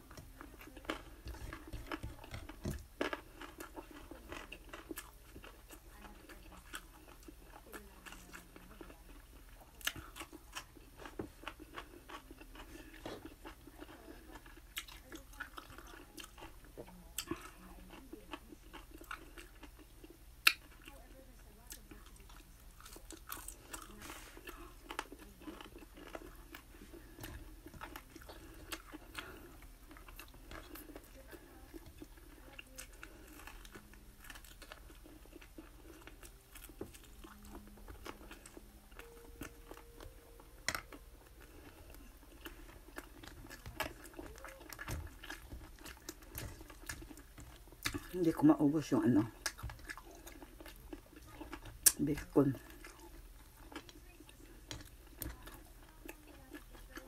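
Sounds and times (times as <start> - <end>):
chewing and crunching food: 0.0 - 57.0.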